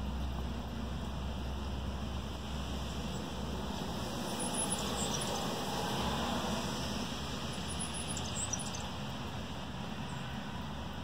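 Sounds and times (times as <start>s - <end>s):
small songbirds chirping: 4.3s - 5.6s, 7.4s - 9.1s, 10.0s - 10.4s.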